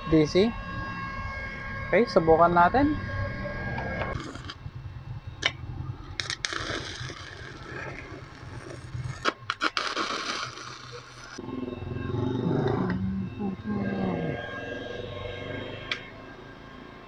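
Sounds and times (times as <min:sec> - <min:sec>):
welding arc crackling and hissing: 0:04.2 - 0:04.6, 0:06.1 - 0:11.4.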